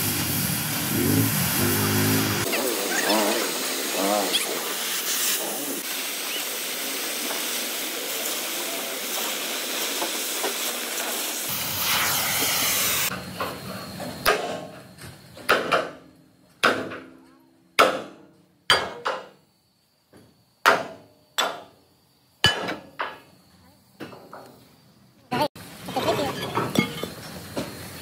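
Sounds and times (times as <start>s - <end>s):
cutting torch hissing: 0.0s - 13.2s.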